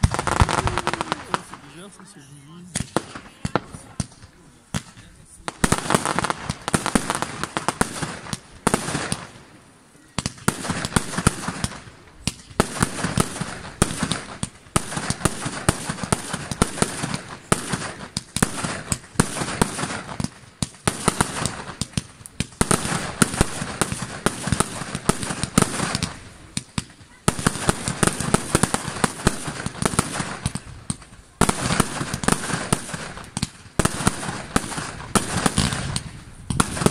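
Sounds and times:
fireworks bangs and pops: 0.0 - 36.9.

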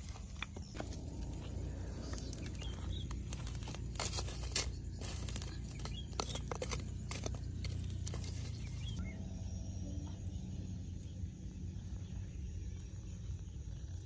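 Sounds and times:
embers crackling and popping: 0.0 - 9.1
low steady rumble: 0.0 - 14.0.

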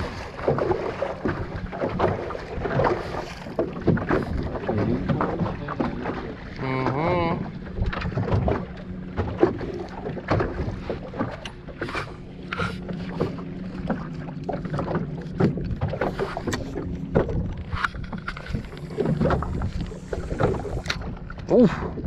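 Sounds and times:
low hum: 0.0 - 22.0
waves slapping boat hull: 0.0 - 22.0
wind buffeting microphone: 14.6 - 22.0.

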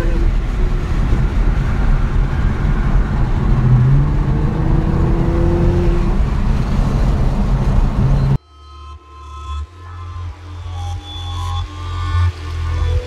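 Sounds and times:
car engine rumble inside cabin: 0.0 - 8.4
road noise: 0.0 - 8.4.

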